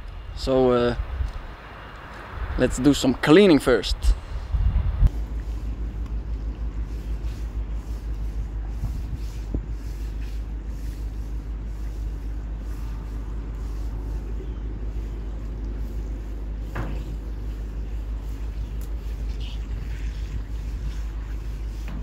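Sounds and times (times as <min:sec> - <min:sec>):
steady low rumble: 0:00.0 - 0:22.0
brush scrubbing metal: 0:05.1 - 0:22.0
hose spraying water on metal: 0:15.8 - 0:22.0.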